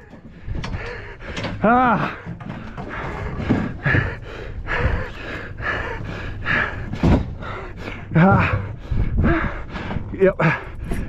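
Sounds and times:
man breathing hard: 0:00.0 - 0:11.0
short low thumps: 0:03.2 - 0:11.0.

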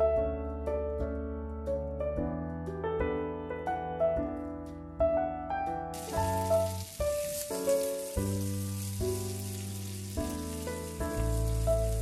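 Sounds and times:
background piano music: 0:00.0 - 0:12.0
sausages sizzling in frying pan: 0:06.0 - 0:12.0.

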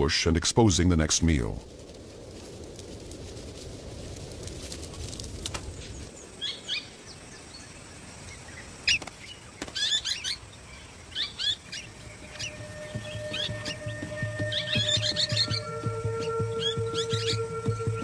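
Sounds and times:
dry grass crackling as it burns: 0:01.0 - 0:06.4
low rumble: 0:11.9 - 0:18.0.

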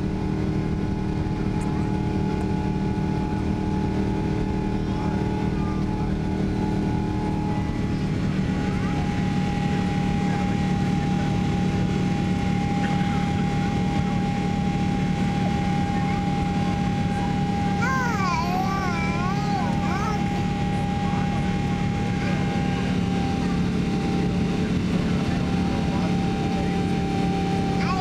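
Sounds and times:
low hum: 0:00.0 - 0:27.9
airplane cabin roar: 0:00.0 - 0:28.0
steady whine: 0:00.0 - 0:28.0.

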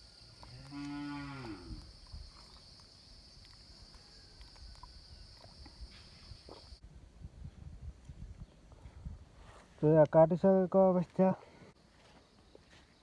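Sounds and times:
high insect drone: 0:00.0 - 0:06.8
cow mooing: 0:00.6 - 0:01.8.

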